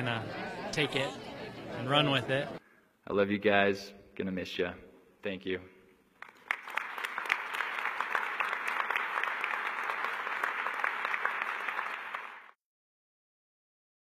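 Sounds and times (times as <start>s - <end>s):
crowd applauding: 0.0s - 2.6s, 6.2s - 12.6s.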